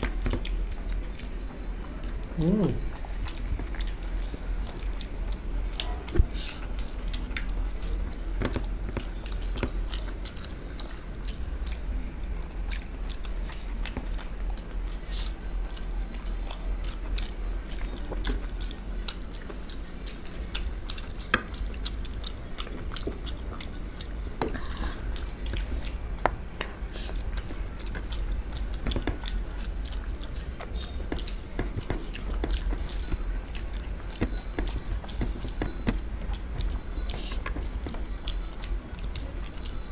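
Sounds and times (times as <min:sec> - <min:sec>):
people eating and chewing: 0:00.0 - 0:39.9
steady low hum: 0:00.0 - 0:39.9
mouth clicks: 0:02.0 - 0:04.0.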